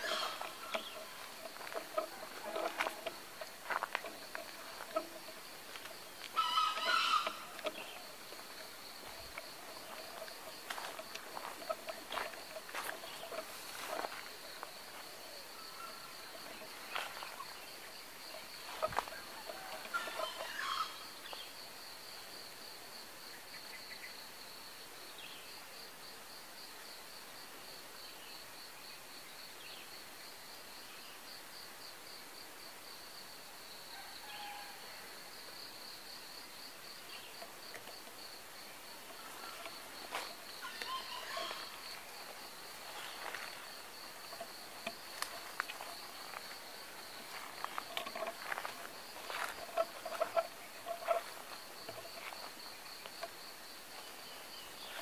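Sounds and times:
distant junglefowl crowing: 0:00.0 - 0:21.5, 0:33.9 - 0:35.2, 0:39.0 - 0:53.3
high insect chirr: 0:00.0 - 0:55.0.

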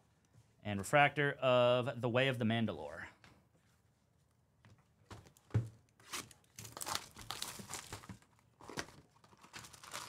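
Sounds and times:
packaging crinkling and rustling: 0:06.0 - 0:10.0.

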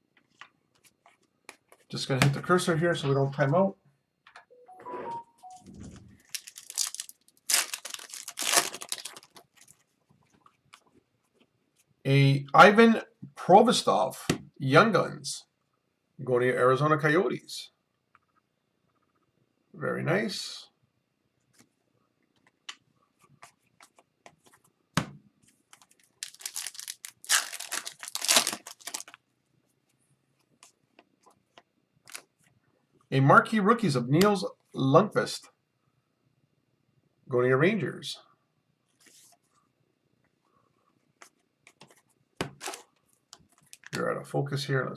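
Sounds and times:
foil wrapper crinkling and tearing: 0:06.2 - 0:09.8, 0:25.8 - 0:29.2, 0:42.6 - 0:42.9.

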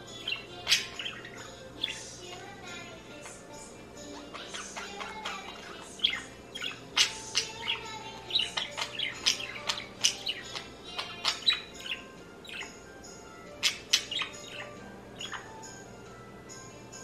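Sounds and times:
budgerigar warbling: 0:00.2 - 0:02.1, 0:04.1 - 0:12.8, 0:13.5 - 0:15.6.

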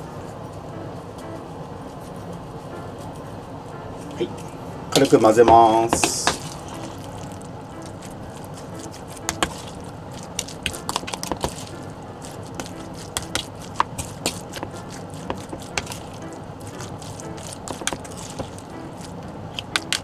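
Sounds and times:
metal spoon stirring in a bowl: 0:06.4 - 0:20.0.

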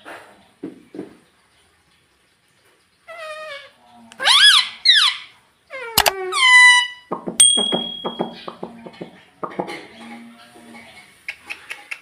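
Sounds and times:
parakeets squawking: 0:04.2 - 0:05.3.

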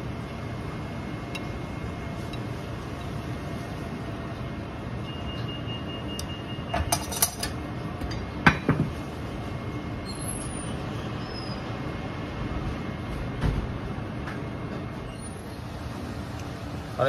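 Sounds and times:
steady background hum: 0:00.0 - 0:17.0
metal utensils clinking: 0:06.9 - 0:07.6.

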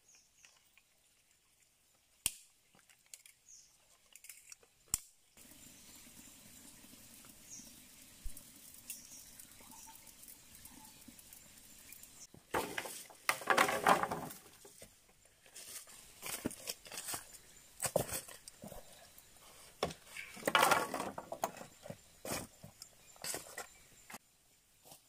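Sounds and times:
twigs rustling and snapping: 0:02.2 - 0:05.2, 0:12.5 - 0:18.9.

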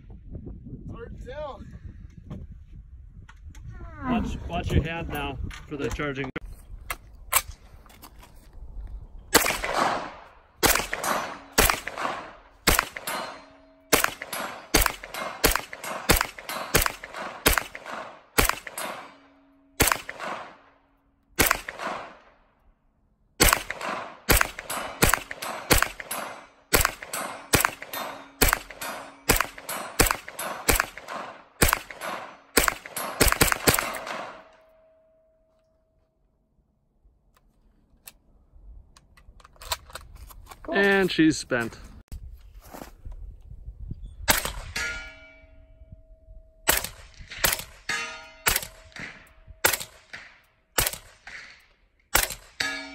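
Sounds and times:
gunshots ringing out: 0:09.3 - 0:20.8, 0:21.4 - 0:22.4, 0:23.4 - 0:34.7, 0:46.7 - 0:52.9.

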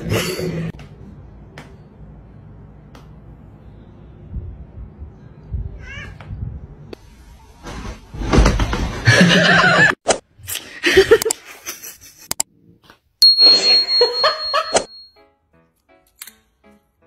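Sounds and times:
steady high tone: 0:13.2 - 0:15.1.

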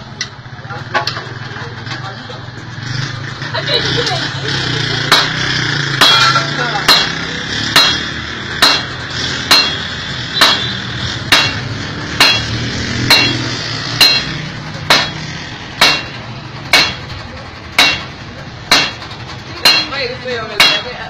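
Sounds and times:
hammer striking iron on anvil: 0:05.1 - 0:05.4, 0:06.0 - 0:21.0.

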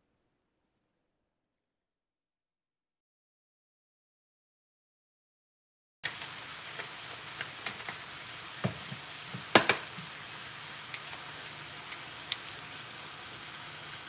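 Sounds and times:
meat sizzling in oil: 0:06.0 - 0:14.0
sharp oil pops: 0:08.6 - 0:10.1.

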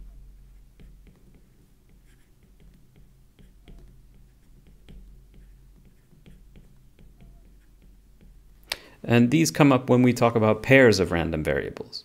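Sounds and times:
stylus tapping on tablet: 0:00.0 - 0:08.9
low steady hum: 0:00.0 - 0:11.6.

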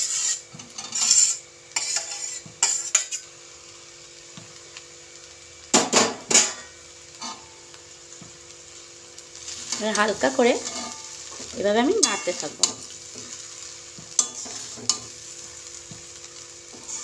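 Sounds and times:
metal utensil scraping cookware: 0:00.0 - 0:03.2, 0:12.0 - 0:13.3, 0:14.1 - 0:15.1.

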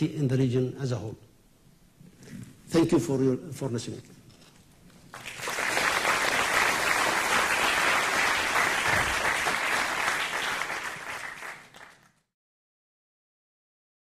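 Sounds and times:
audience applauding: 0:05.1 - 0:12.2.

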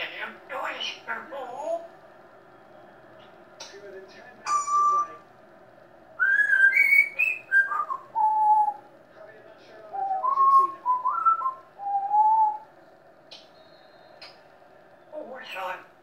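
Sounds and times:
parrot whistling: 0:04.4 - 0:05.2, 0:06.2 - 0:08.9, 0:09.9 - 0:12.7.

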